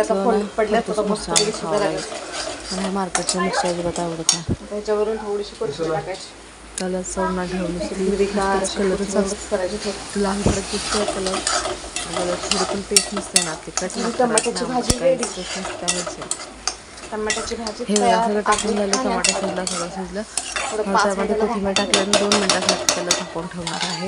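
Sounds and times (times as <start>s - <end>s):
curry sizzling in oil: 0.0s - 24.0s
metal spatula scraping a pan: 1.0s - 4.4s, 8.9s - 24.0s.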